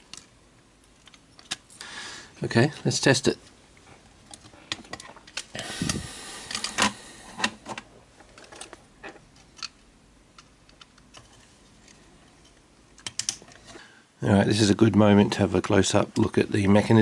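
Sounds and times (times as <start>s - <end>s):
small plastic and metal clicks: 13.0s - 13.5s.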